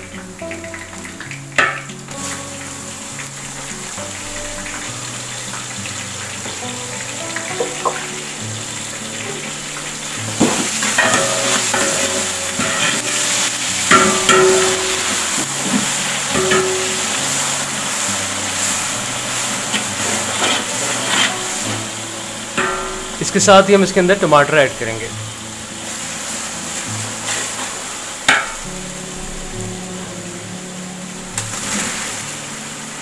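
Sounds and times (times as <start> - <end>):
background music: 0.0 - 33.0
paste sizzling in hot oil: 0.0 - 33.0
metal ladle scraping pot: 10.9 - 17.7, 18.7 - 23.2.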